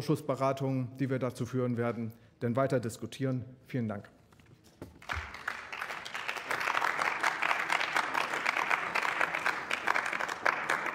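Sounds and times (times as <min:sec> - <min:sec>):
applause: 0:05.0 - 0:10.9.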